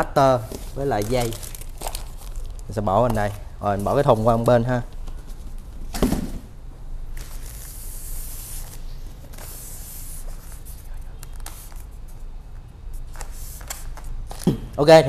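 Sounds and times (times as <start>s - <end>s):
packaging rustling and rubbing: 0.4s - 5.8s.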